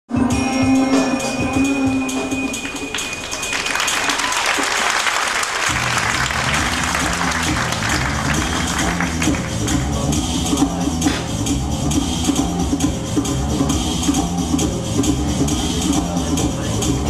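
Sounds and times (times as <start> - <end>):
show music with sustained tones: 0.1 - 17.0
audience applause: 2.6 - 9.8
low drum beat: 5.7 - 17.0.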